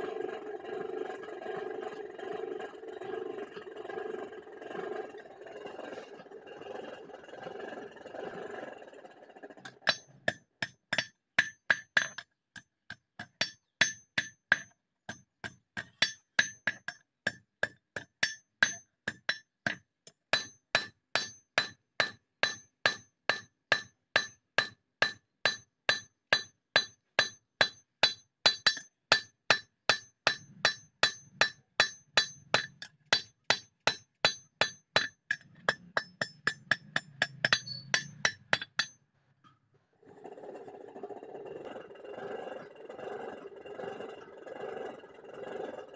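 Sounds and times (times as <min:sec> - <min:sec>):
hammer striking hot steel: 0:09.5 - 0:39.0.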